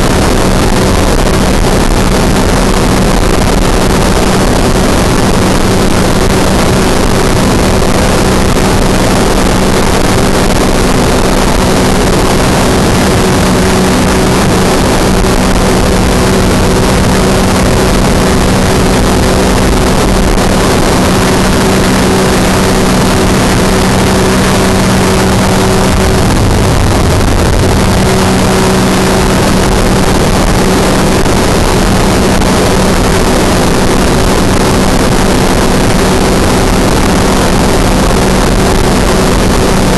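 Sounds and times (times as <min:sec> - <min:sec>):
engine and propeller drone: 0:00.0 - 0:39.9
rushing air: 0:00.0 - 0:39.9.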